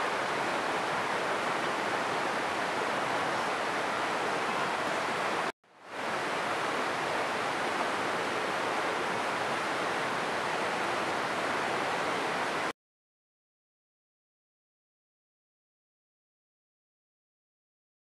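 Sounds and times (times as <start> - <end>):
flowing water rushing: 0.0 - 12.7.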